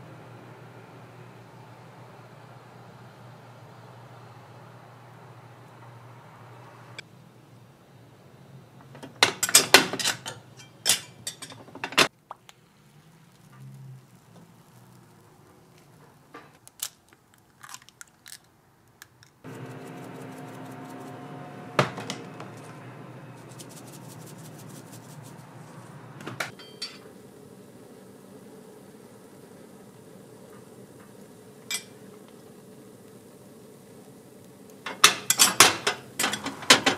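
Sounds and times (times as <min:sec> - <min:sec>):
faint hum: 0:00.0 - 0:09.0, 0:19.4 - 0:35.1
steady hiss: 0:19.4 - 0:36.9.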